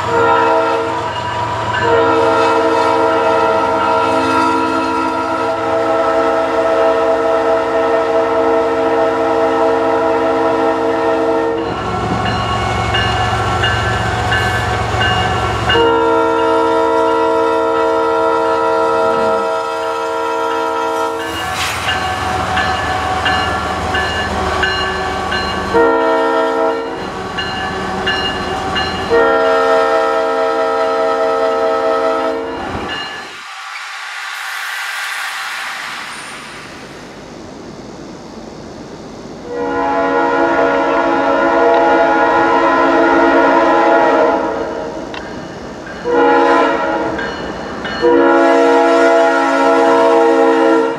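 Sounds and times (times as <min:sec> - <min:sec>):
locomotive air horn blasts: 0:00.0 - 0:13.6, 0:14.7 - 0:21.2, 0:24.3 - 0:27.1, 0:29.0 - 0:32.6, 0:39.5 - 0:44.9, 0:46.0 - 0:47.2, 0:48.0 - 0:50.9
train rumble and clatter: 0:00.0 - 0:50.9.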